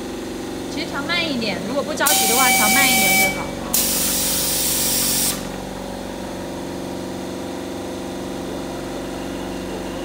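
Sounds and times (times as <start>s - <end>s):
machine hum: 0.0s - 10.0s
compressed air hiss: 3.7s - 5.5s.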